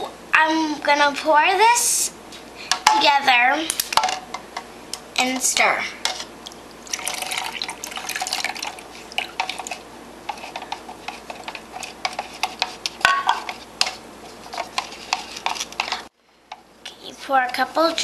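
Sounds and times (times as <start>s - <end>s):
water pouring into a cup: 6.4s - 9.7s.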